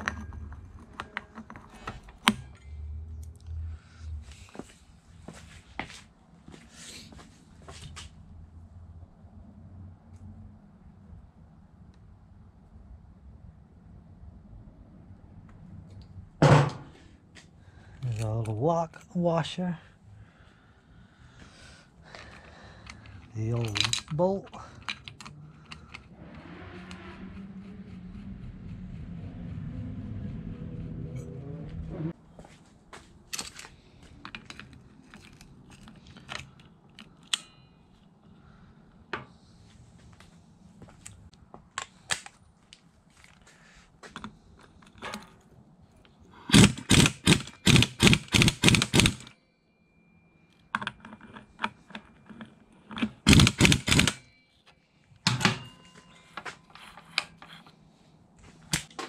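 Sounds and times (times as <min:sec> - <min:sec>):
clicks and knocks of tools: 0:22.1 - 0:26.1, 0:33.3 - 0:38.1, 0:50.5 - 0:57.8
impact wrench hammering: 0:46.5 - 0:49.3, 0:53.3 - 0:54.2.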